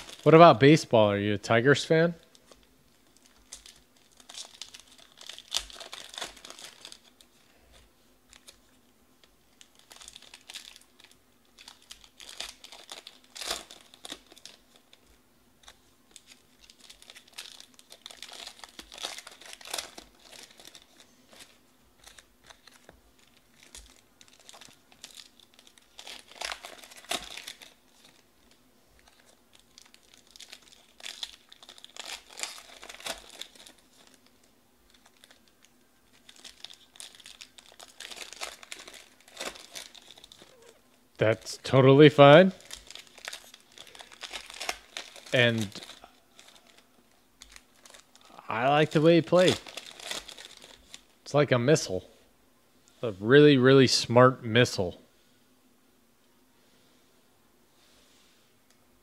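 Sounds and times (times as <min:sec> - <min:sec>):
foil wrappers tearing and crinkling: 0:00.0 - 0:00.6, 0:02.4 - 0:07.3, 0:08.3 - 0:08.6, 0:09.2 - 0:40.8, 0:41.7 - 0:51.2.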